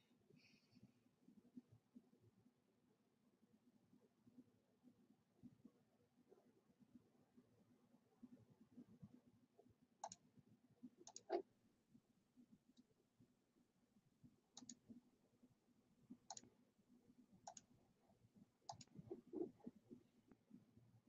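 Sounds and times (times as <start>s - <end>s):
computer mouse clicks: 10.0s - 10.2s, 11.0s - 11.4s, 14.6s - 14.8s, 16.3s - 16.5s, 17.4s - 17.7s, 18.7s - 19.5s.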